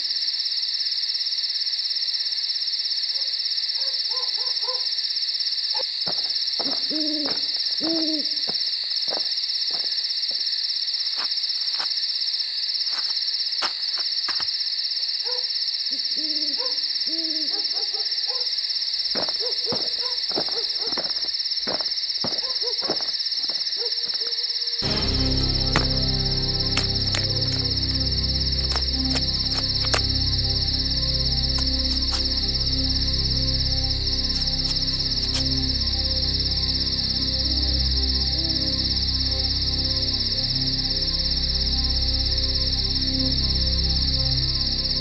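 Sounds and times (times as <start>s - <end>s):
high-pitched insect chorus: 0.0s - 45.0s
owl hooting: 6.6s - 8.6s, 15.2s - 18.5s.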